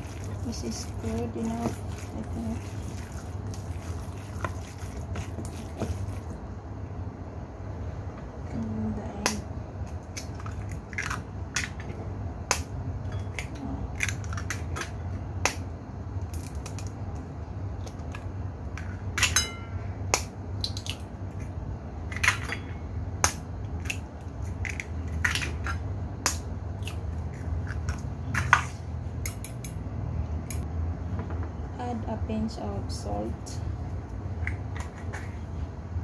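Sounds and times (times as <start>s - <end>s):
steady low hum: 0.0s - 36.0s
eggshells cracking: 9.9s - 11.8s, 16.3s - 17.0s, 20.2s - 21.1s
ceramic bowl clink: 19.2s - 19.8s.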